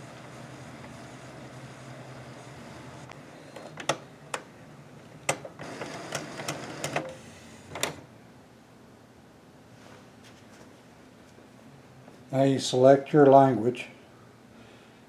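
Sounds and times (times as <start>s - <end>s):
printer motor whir: 0.0s - 4.0s, 5.3s - 8.1s
printer mechanical hum: 0.0s - 8.2s
printer clicks: 5.2s - 8.0s.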